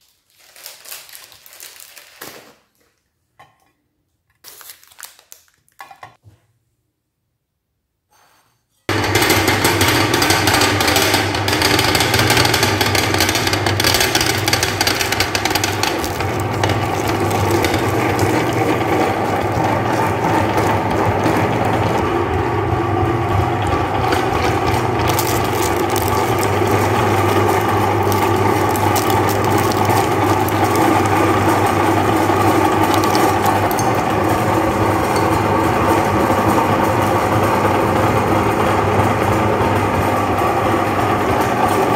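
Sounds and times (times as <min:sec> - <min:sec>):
electric meat grinder running: 0:08.9 - 0:41.9.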